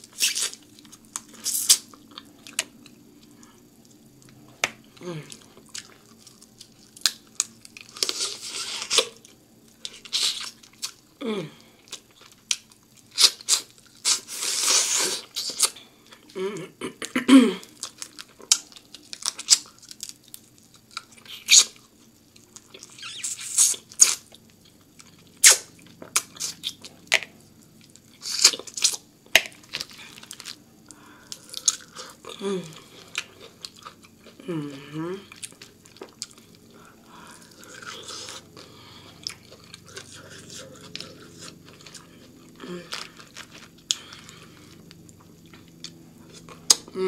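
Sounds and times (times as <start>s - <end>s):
wet chewing and crunching: 0.0s - 11.1s, 11.8s - 16.3s, 17.6s - 46.9s
slurping and sucking: 14.1s - 15.6s.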